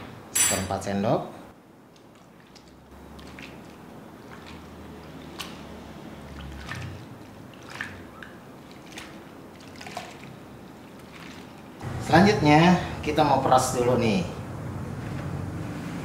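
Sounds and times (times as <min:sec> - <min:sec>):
hands squishing wet potato: 0:01.9 - 0:11.8
water dripping: 0:01.9 - 0:11.8.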